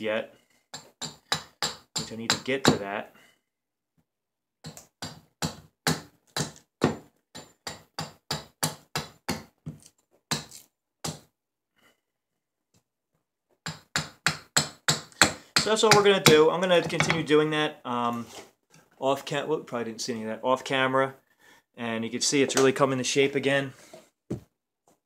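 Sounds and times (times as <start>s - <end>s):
hatchet chopping wood: 0.7s - 2.8s, 4.6s - 11.3s, 13.6s - 16.4s.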